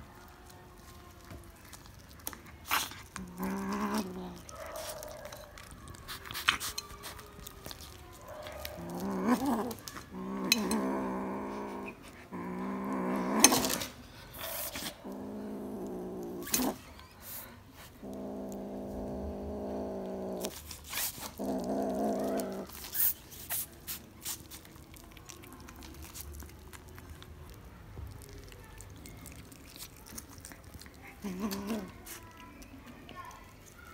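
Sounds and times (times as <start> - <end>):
teeth crunching on corn cob: 0.0 - 11.2, 17.8 - 33.9
kitten growling: 1.6 - 23.2, 28.7 - 32.5.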